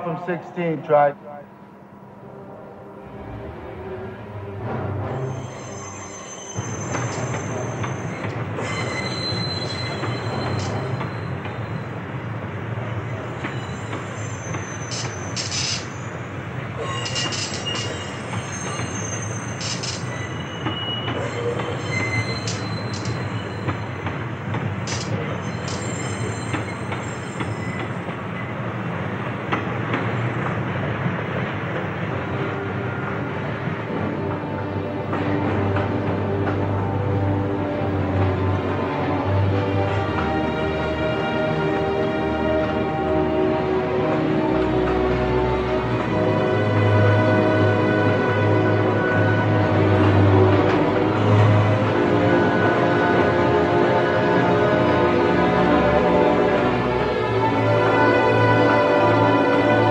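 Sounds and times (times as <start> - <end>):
train wheels rumbling on rails: 0.0 - 59.9
metallic wheel squeals: 5.2 - 11.9, 13.3 - 16.2, 16.8 - 24.1, 24.9 - 28.0.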